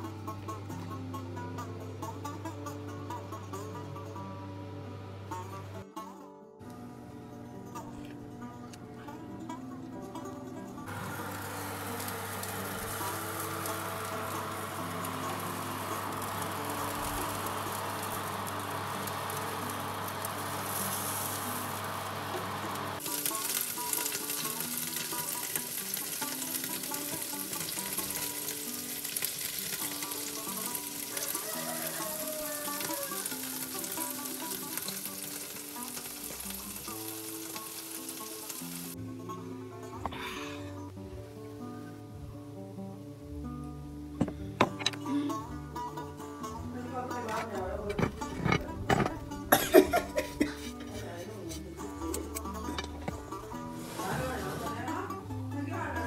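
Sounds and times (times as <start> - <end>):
low hum: 10.9 - 23.0
chicken sizzling under grill: 10.9 - 39.0, 48.0 - 51.0, 51.8 - 55.1.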